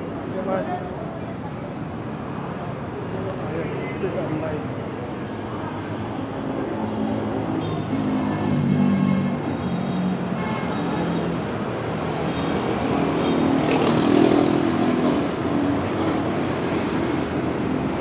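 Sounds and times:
tyres on road: 0.0 - 18.0
car and motorcycle engines: 10.9 - 18.0.

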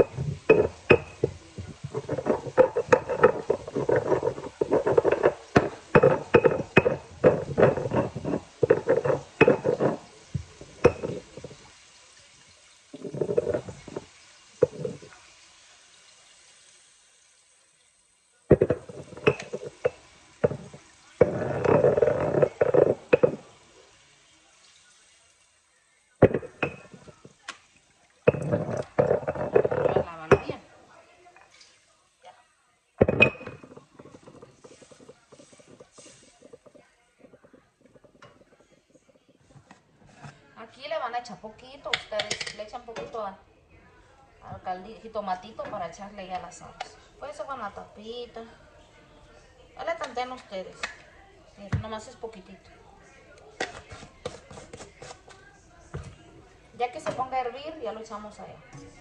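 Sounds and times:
stone mortar and pestle grinding: 0.0 - 11.6, 13.0 - 15.1, 18.5 - 23.5, 26.2 - 27.3, 28.3 - 30.6, 33.0 - 38.7.

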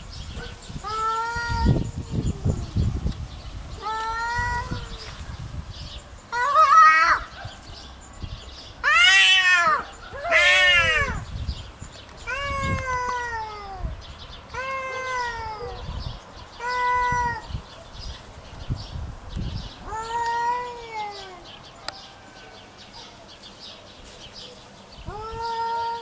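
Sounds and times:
cats yowling: 0.8 - 2.7, 3.8 - 5.2, 6.3 - 7.4, 8.8 - 11.3, 12.2 - 16.0, 16.6 - 17.5, 19.8 - 22.0, 25.1 - 26.0.

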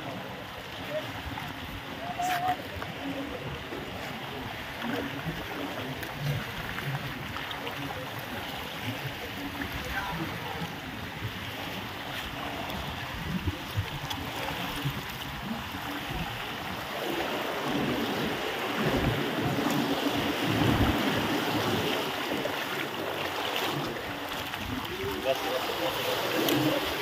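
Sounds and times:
sea water washing: 0.0 - 27.0
wind buffeting microphone: 9.1 - 22.6.

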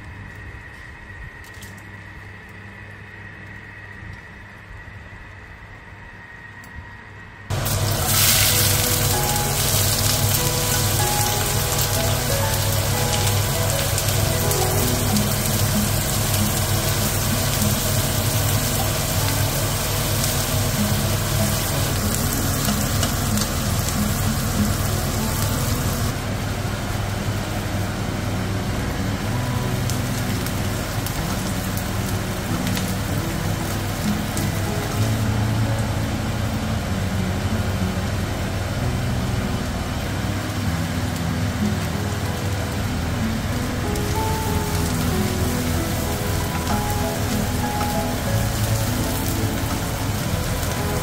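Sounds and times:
background music: 7.5 - 26.2, 27.9 - 51.0
onion and garlic sizzling in oil: 7.5 - 51.0.

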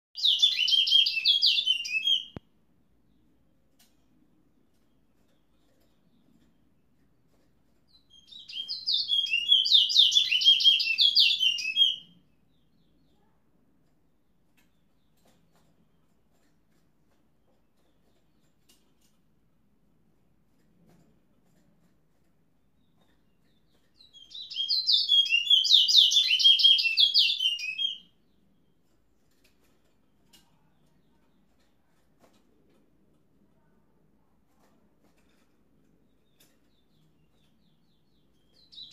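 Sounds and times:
bird singing whistled notes: 0.2 - 2.4, 8.2 - 12.1, 24.1 - 28.1
songbird whistling fast song: 8.3 - 12.1.

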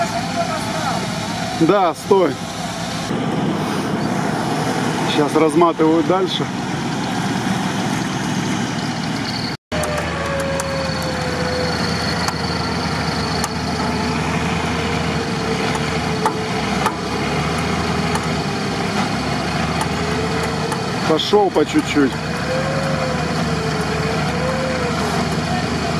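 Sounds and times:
vehicle engine idling: 0.0 - 25.9
winch whine: 0.0 - 25.9.

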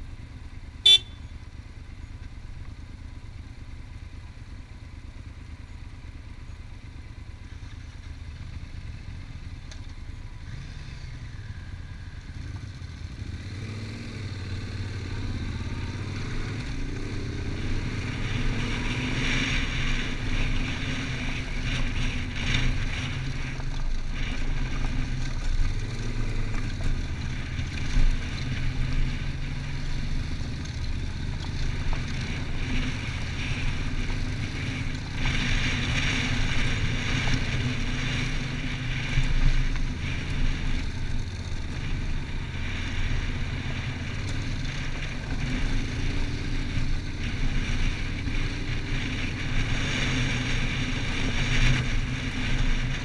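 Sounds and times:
motorcycle engine running: 0.0 - 53.0
wind rushing over camera: 11.2 - 53.0.

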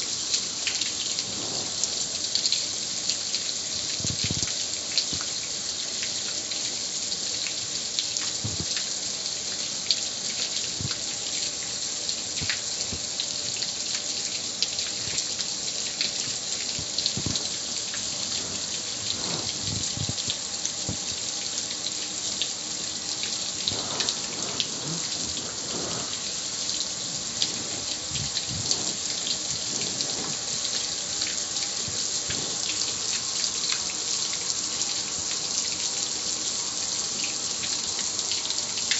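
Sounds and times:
hose spraying water on metal: 0.0 - 38.9
water splattering and dripping: 0.0 - 38.9.

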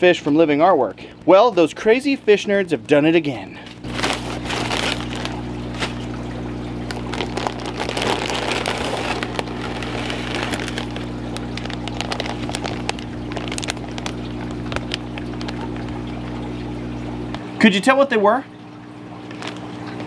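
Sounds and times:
steady low hum: 0.0 - 17.6
plastic bag crinkling: 3.7 - 16.5, 19.2 - 19.8.

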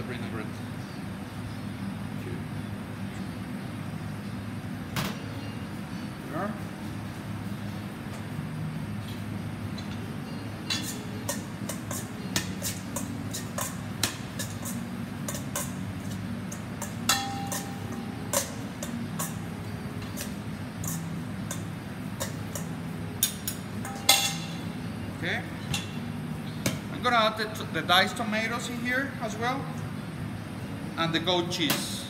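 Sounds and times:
metal utensils clinking in bowl: 10.7 - 24.7.

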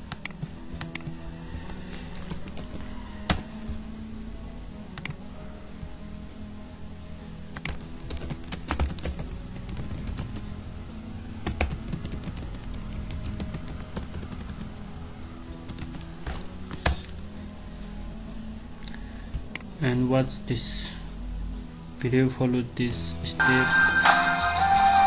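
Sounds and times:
quiet background music: 0.0 - 25.0
computer keyboard typing: 2.0 - 3.5, 7.6 - 10.5, 11.4 - 14.6, 15.7 - 17.1.

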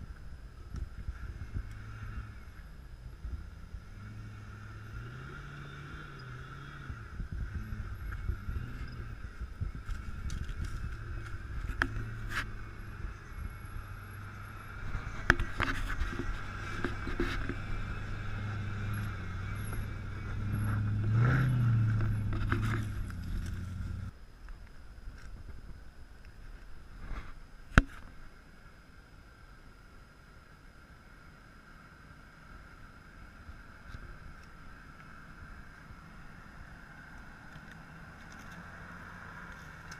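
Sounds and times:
off-road vehicle engine at low revs: 0.0 - 39.9
tyres cracking and scraping on rock: 9.8 - 12.5, 19.6 - 24.1.

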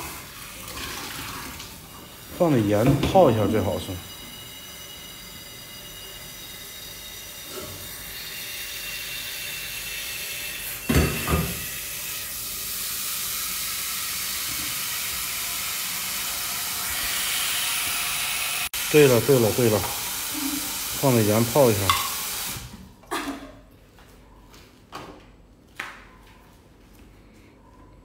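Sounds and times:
tap running into sink: 21.8 - 22.7.

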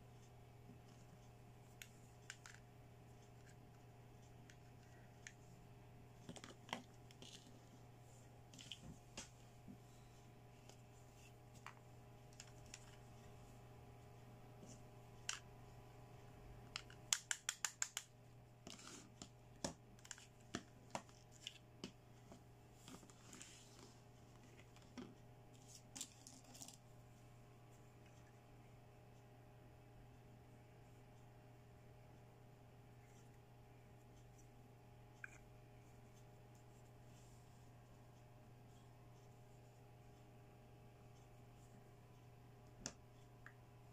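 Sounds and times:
faint steady hum: 0.0 - 43.9
plastic toys clicking and tapping: 1.8 - 2.6, 16.7 - 22.0.

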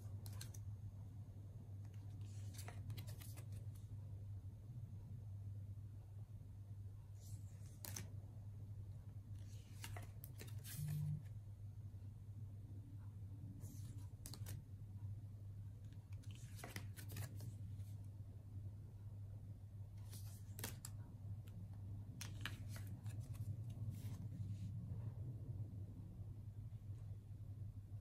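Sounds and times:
cards sliding and flicking: 1.8 - 3.7, 7.2 - 8.1, 9.4 - 11.2, 13.7 - 14.6, 16.2 - 17.5, 20.0 - 20.9.

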